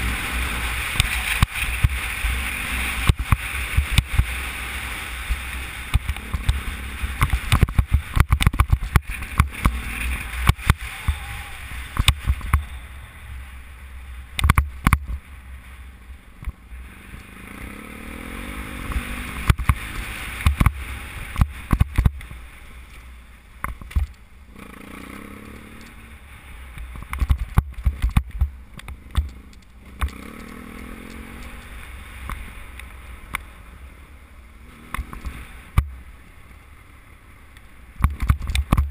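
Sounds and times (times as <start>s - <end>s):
motorcycle engine revving: 0.0s - 15.3s, 15.9s - 22.6s, 24.4s - 36.0s
motorcycle knocks and rattles: 0.8s - 4.4s, 5.2s - 10.8s, 14.4s - 15.2s, 18.9s - 22.4s, 23.6s - 24.2s, 26.8s - 32.5s, 37.9s - 38.9s.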